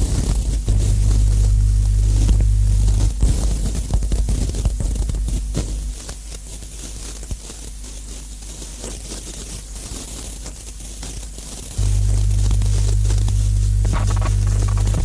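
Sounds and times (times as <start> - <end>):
crackling scraping static noise: 0.0 - 15.0
loud low hum: 0.5 - 6.0, 11.8 - 15.0.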